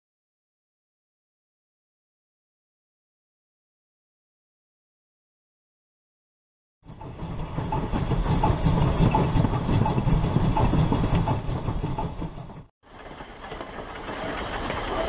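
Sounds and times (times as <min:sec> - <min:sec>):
deep train rumble: 0:06.8 - 0:15.0
quiet train sound: 0:06.8 - 0:15.0
train cars clattering over rail joints: 0:06.9 - 0:15.0.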